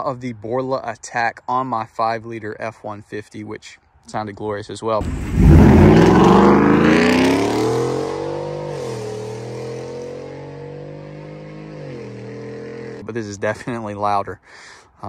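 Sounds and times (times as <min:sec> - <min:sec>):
truck engine accelerating hard: 0:05.0 - 0:13.0.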